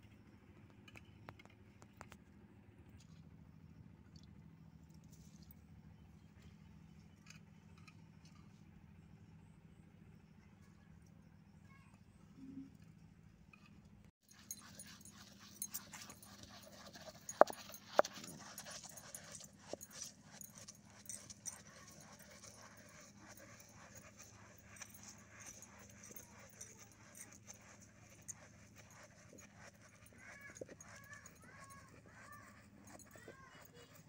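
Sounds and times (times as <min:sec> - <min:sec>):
stone mill grinding: 0:14.3 - 0:34.0.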